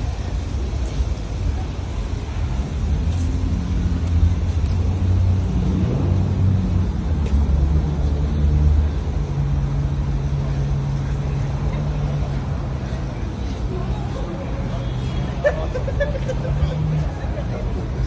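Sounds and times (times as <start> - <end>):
steady street rumble: 0.0 - 18.0
vehicle engine passing: 2.9 - 10.0.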